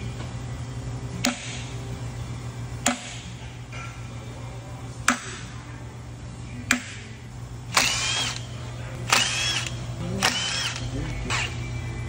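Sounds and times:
cordless power driver whining: 7.7 - 8.5, 9.1 - 11.7.

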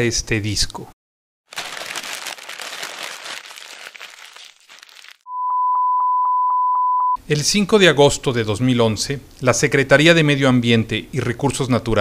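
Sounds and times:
electronic beep: 5.3 - 7.2.

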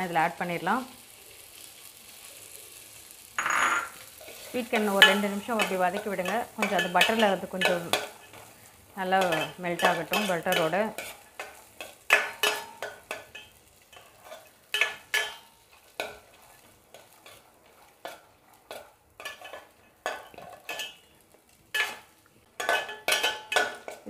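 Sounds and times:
faint sizzle of frying: 0.0 - 24.0
spoon scraping a steel pan: 9.2 - 21.1, 21.7 - 24.0.

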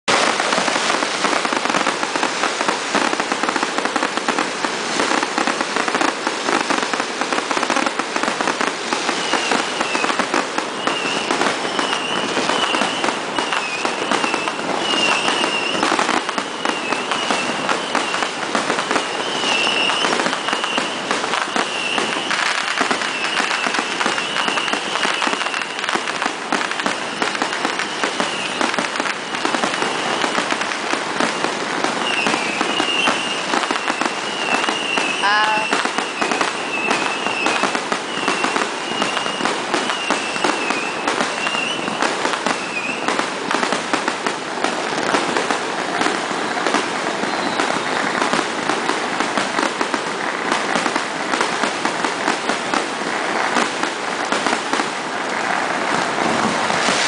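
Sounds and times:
fireworks crackling and banging: 0.0 - 57.0.

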